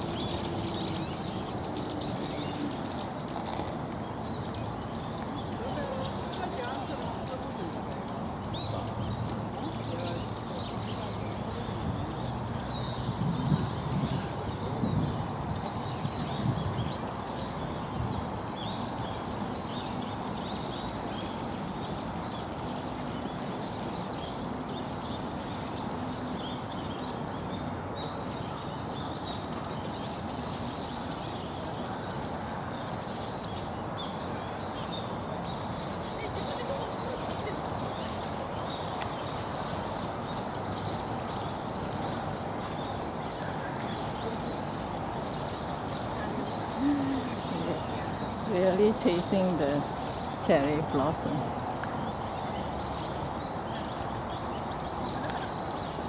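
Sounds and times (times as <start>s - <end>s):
small birds chirping: 0.0s - 56.0s
hum of people: 22.4s - 56.0s.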